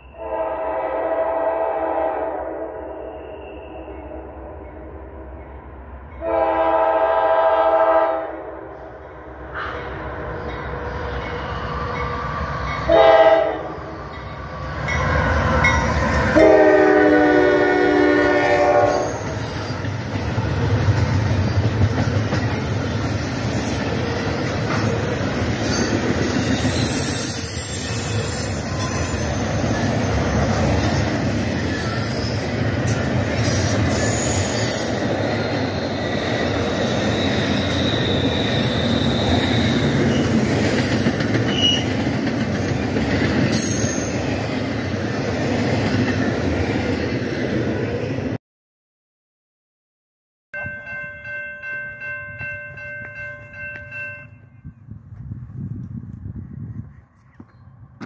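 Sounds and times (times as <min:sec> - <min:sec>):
diesel locomotives: 0:00.0 - 0:48.4
locomotive air horn blasts: 0:00.1 - 0:02.9, 0:06.2 - 0:08.7, 0:12.9 - 0:13.8, 0:16.3 - 0:19.2.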